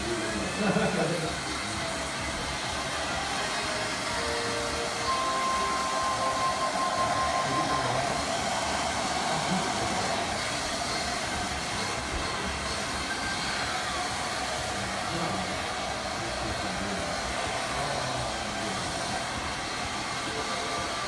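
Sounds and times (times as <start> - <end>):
hair dryer blowing: 0.0 - 21.0
faint high tone: 5.0 - 8.2.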